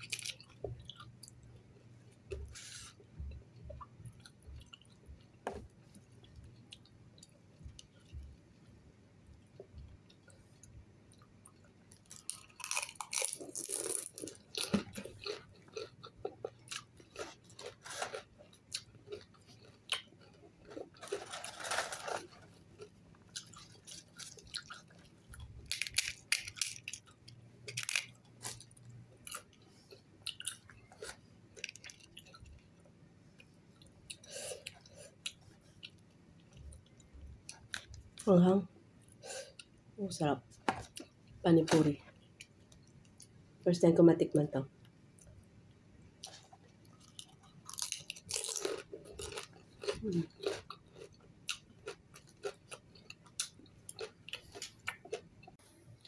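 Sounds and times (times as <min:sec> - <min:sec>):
person crunching crisp food: 0:11.9 - 0:29.6, 0:46.2 - 0:55.3.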